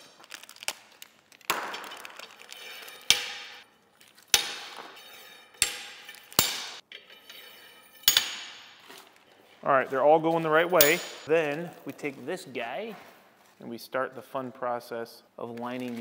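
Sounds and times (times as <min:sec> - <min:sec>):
iron spindles clanking: 0:04.4 - 0:08.9, 0:10.4 - 0:11.3.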